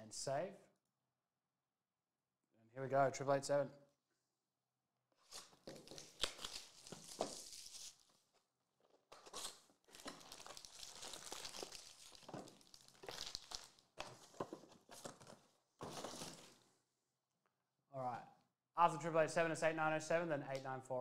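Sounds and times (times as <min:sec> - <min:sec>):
cardboard flaps tearing: 0:05.3 - 0:08.0
foil packs crinkling: 0:05.4 - 0:08.1, 0:09.2 - 0:16.6.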